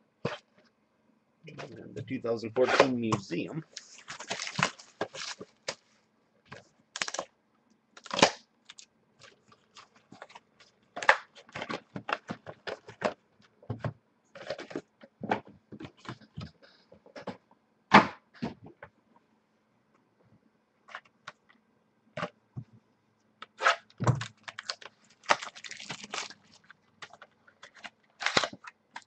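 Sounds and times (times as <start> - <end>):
plastic wrap crackling: 3.7 - 5.9, 7.0 - 7.3, 8.0 - 13.0, 23.6 - 29.0.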